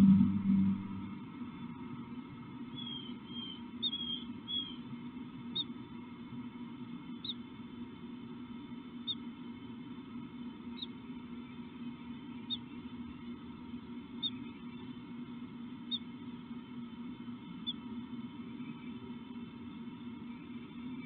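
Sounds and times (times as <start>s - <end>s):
steady low hum: 0.0s - 21.0s
small bird chirping: 2.8s - 4.8s, 7.2s - 7.4s, 9.0s - 9.2s, 10.7s - 11.6s, 12.3s - 12.8s, 14.1s - 14.9s, 15.8s - 16.1s.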